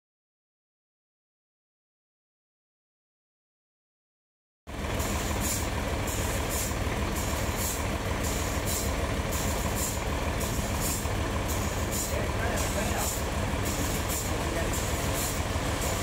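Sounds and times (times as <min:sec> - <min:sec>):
heavy machine low rumble: 0:04.7 - 0:16.0
pulsing high hiss: 0:05.0 - 0:16.0.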